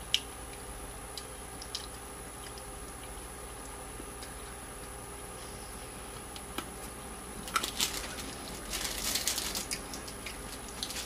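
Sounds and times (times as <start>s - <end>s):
brittle being bitten and chewed: 7.4s - 11.0s.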